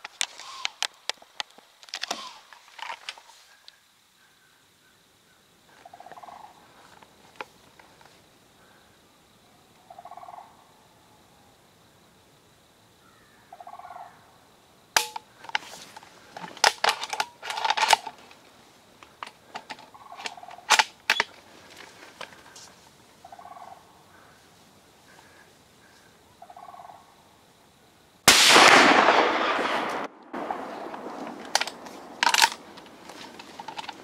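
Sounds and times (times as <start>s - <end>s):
gear handling clicks: 31.5s - 34.0s.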